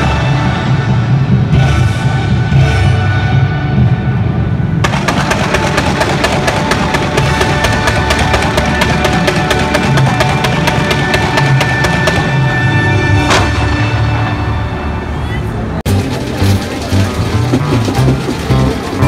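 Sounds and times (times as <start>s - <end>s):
rapid crackling of fireworks: 4.8s - 12.6s
show music playing: 4.8s - 19.0s.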